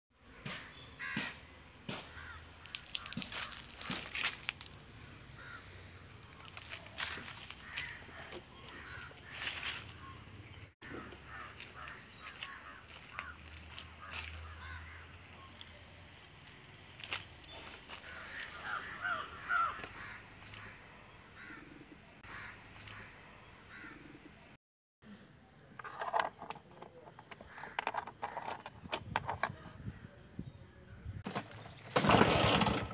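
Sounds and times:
outdoor background noise: 0:00.1 - 0:32.9
harsh bird calls: 0:00.3 - 0:04.3, 0:04.9 - 0:16.2, 0:17.0 - 0:24.6, 0:27.0 - 0:32.6
crows cawing: 0:00.4 - 0:04.4, 0:05.2 - 0:10.2, 0:10.8 - 0:15.2, 0:17.9 - 0:24.2, 0:27.4 - 0:28.4
footsteps on gravel and leaves: 0:02.0 - 0:04.9, 0:06.2 - 0:10.2, 0:11.3 - 0:20.8.

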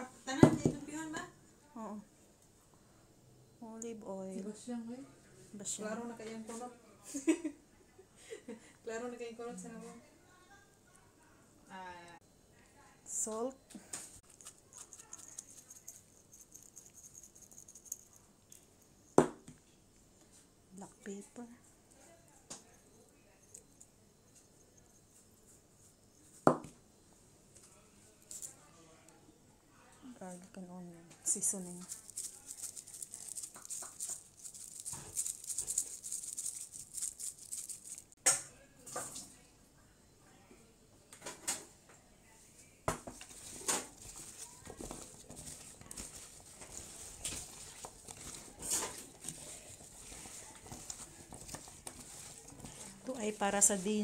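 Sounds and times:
seasoning bottle rattling: 0:14.2 - 0:18.6, 0:31.4 - 0:38.2, 0:43.4 - 0:53.9
salt pattering on potatoes: 0:31.4 - 0:38.2, 0:44.0 - 0:54.0.

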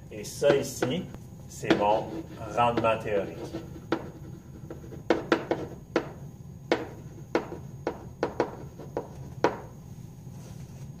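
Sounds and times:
pen tapping on whiteboard: 0:00.5 - 0:01.0, 0:01.6 - 0:09.7.

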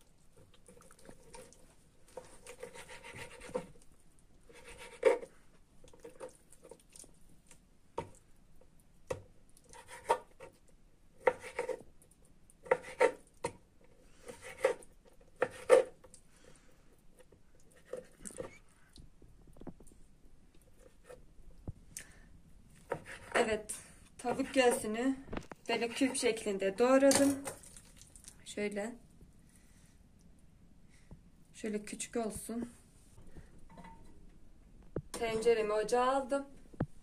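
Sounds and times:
knife slicing meat: 0:02.2 - 0:03.8.

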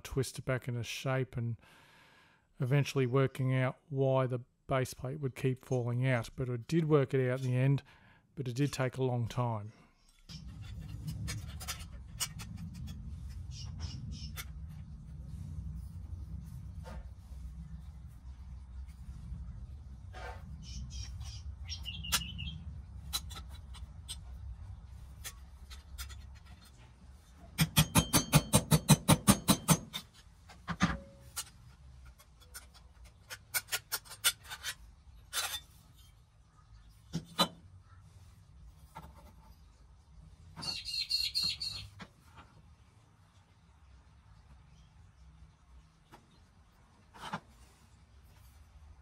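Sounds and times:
bird chirps: 0:13.5 - 0:14.4, 0:20.6 - 0:22.7, 0:40.6 - 0:42.0.

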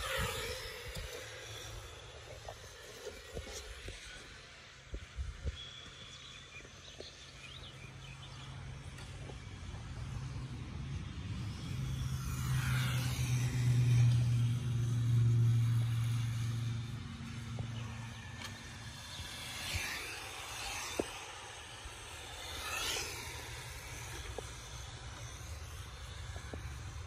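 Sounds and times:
high whine sweeping: 0:00.0 - 0:06.7, 0:07.9 - 0:27.0
low vehicle hum: 0:07.4 - 0:27.0.

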